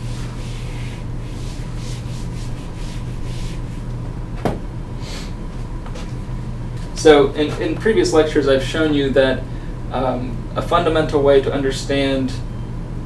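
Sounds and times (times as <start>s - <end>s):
scratchy rubbing on writing surface: 0.0s - 3.8s.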